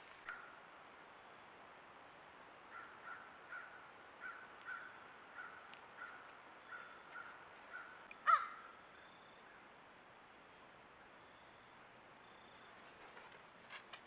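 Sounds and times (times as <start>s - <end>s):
crows cawing: 2.7s - 8.8s.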